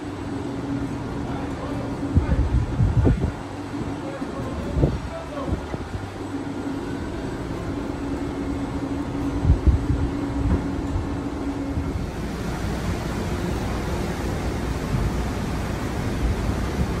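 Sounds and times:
machine hum: 0:00.0 - 0:17.0
wind buffeting microphone: 0:02.0 - 0:03.9, 0:09.1 - 0:12.8.

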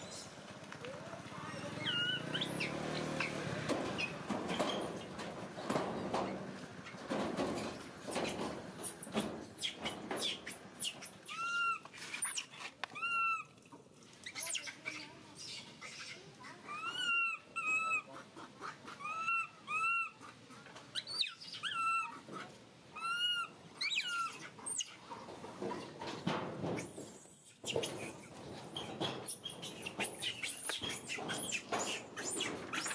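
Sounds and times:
infant monkey crying: 0:11.2 - 0:11.8, 0:12.9 - 0:13.5, 0:15.8 - 0:18.1, 0:18.7 - 0:20.4, 0:21.0 - 0:22.3, 0:22.9 - 0:24.8.

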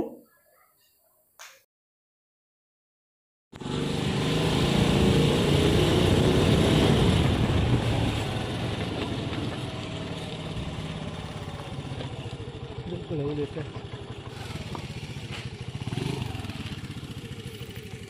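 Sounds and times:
vehicle engine running: 0:03.6 - 0:18.0.

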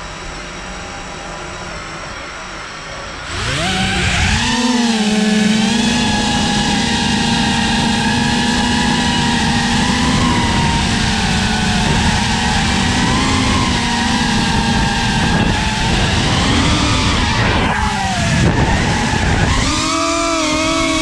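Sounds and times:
quadcopter motors whining: 0:00.0 - 0:21.0.

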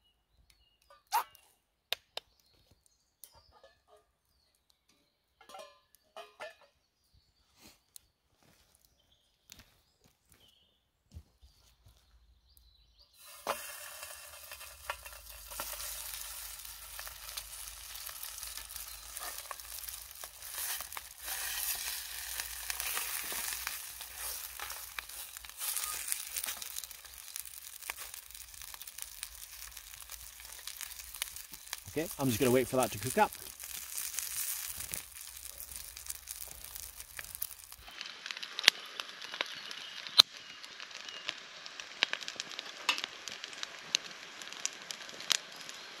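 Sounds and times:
small crackles: 0:07.6 - 0:10.6, 0:11.2 - 0:46.0
sausage sizzling in oil: 0:13.0 - 0:46.0.

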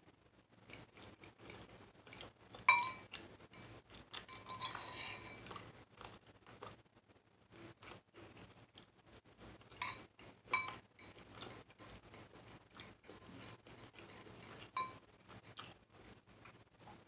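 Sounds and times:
utensil scraping ceramic bowl: 0:00.7 - 0:05.7, 0:09.7 - 0:15.6.

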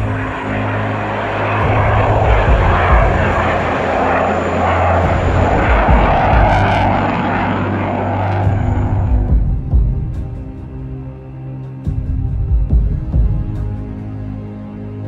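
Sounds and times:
jet engine rushing: 0:00.0 - 0:10.9.

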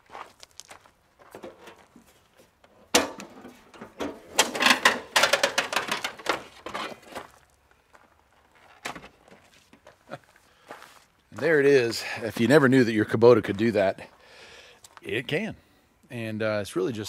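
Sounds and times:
tractor hood clunk: 0:02.7 - 0:06.8.

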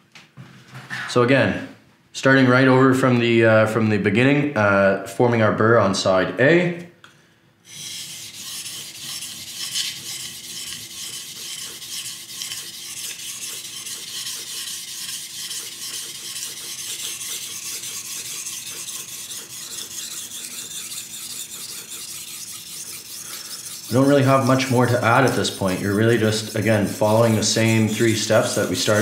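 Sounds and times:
knife scraping on a whetstone: 0:07.7 - 0:29.0.

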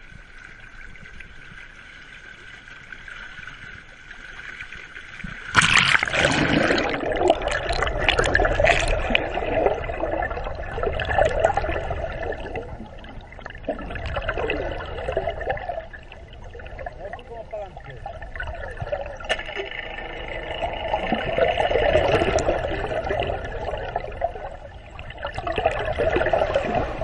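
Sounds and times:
muffled underwater rushing and bubbling: 0:00.0 - 0:27.0
sea water lapping: 0:00.8 - 0:27.0
loud splash: 0:05.5 - 0:09.8.

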